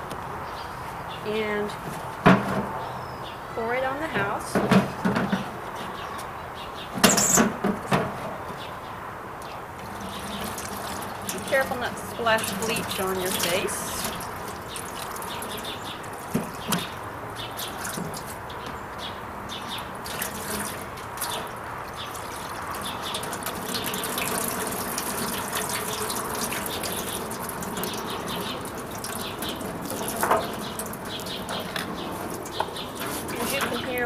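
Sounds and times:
liquid pouring and splashing into metal tub: 9.8s - 18.5s, 19.6s - 34.0s.

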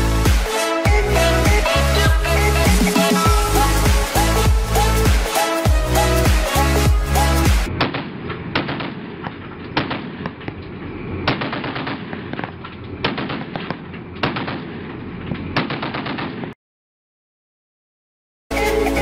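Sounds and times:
heavy machine gun firing: 7.7s - 10.4s, 11.2s - 16.6s
faint gunfire cracks: 7.7s - 10.6s, 11.3s - 16.6s.

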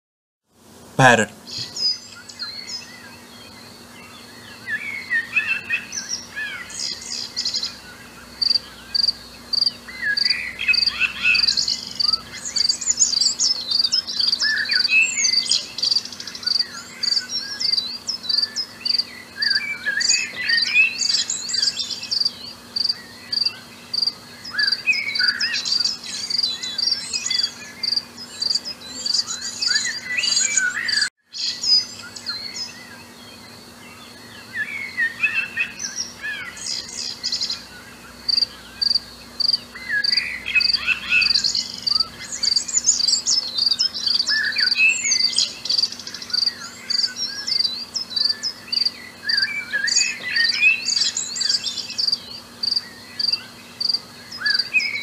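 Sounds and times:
crickets chirping: 6.8s - 29.2s, 35.6s - 54.9s
parrots chirping: 39.9s - 45.8s.

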